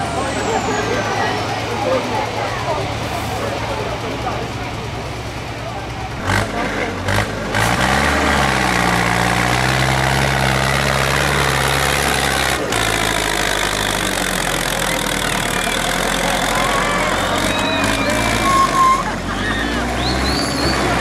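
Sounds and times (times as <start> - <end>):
diesel tractor engine running: 0.0 - 21.0.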